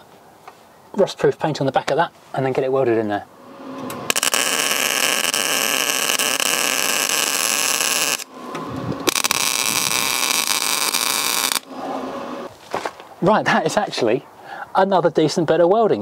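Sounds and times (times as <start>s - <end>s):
welding arc crackling: 4.1s - 12.5s.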